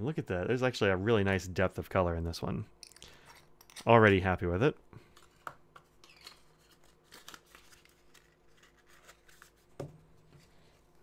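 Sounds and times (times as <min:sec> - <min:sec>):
paper rustling: 0:06.0 - 0:11.0.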